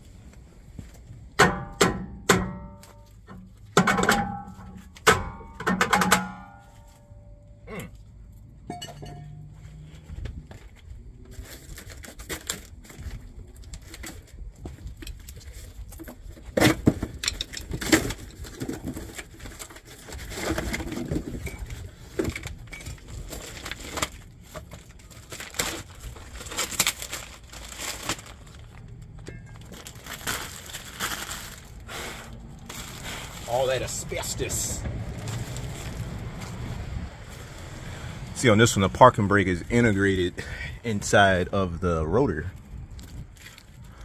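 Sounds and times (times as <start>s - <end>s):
metal tools knocking and clinking: 1.4s - 6.7s, 8.6s - 9.5s, 17.2s - 17.8s, 29.2s - 29.8s
rustling scrape: 29.5s - 38.1s.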